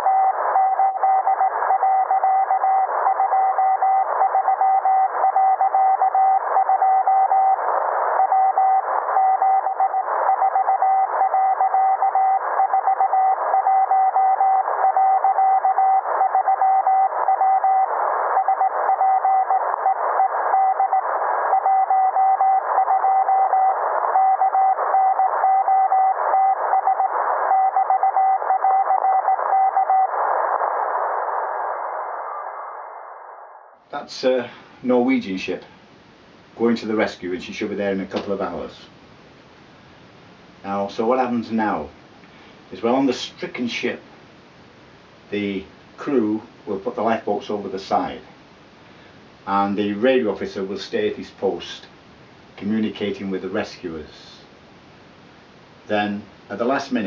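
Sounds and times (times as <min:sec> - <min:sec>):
radio static: 0:00.0 - 0:34.6
morse code tone: 0:00.1 - 0:07.6.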